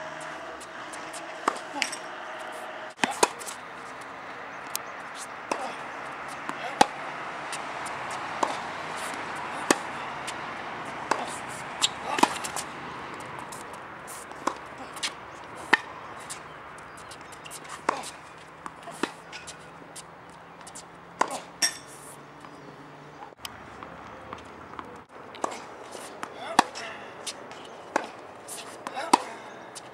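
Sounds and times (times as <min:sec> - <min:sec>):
tennis balls struck with rackets: 0:00.0 - 0:29.9.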